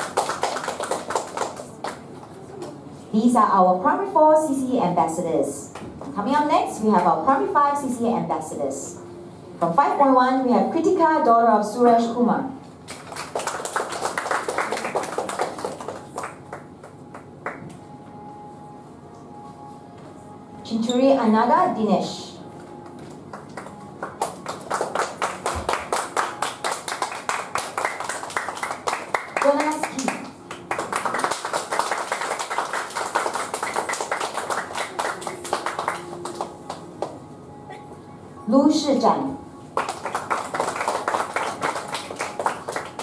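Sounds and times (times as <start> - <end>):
audience applause: 0.0 - 2.7, 12.9 - 16.8, 23.3 - 36.8, 39.8 - 43.0.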